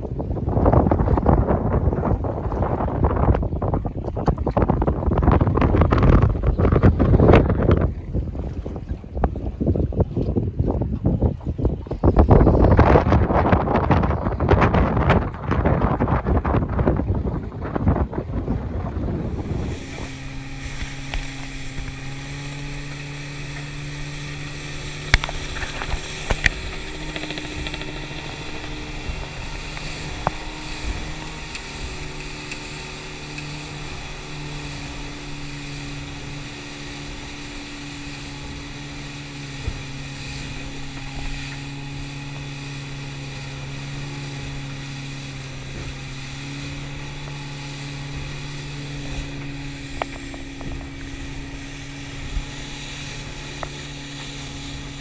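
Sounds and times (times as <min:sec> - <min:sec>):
outboard motor running: 0:00.0 - 0:55.0
water rushing: 0:00.0 - 0:55.0
wind: 0:00.0 - 0:55.0.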